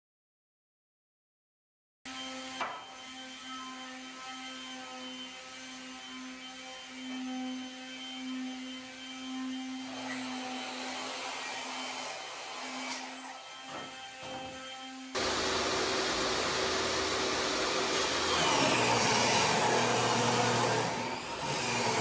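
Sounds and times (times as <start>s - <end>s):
electric motor humming: 15.2s - 22.0s.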